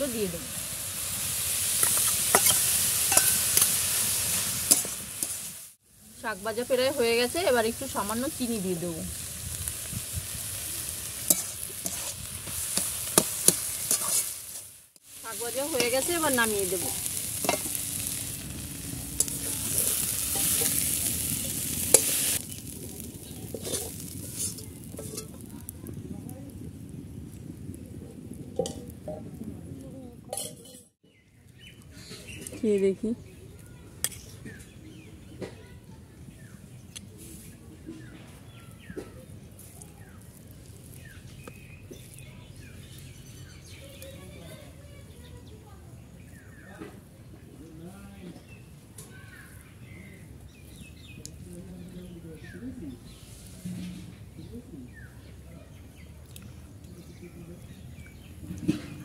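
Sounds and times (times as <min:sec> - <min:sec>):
food sizzling: 0:00.0 - 0:31.0, 0:32.2 - 0:59.0
metal spatula scraping a wok: 0:01.5 - 0:05.6, 0:09.8 - 0:25.4
small birds chirping: 0:06.2 - 0:28.3, 0:31.0 - 0:59.0.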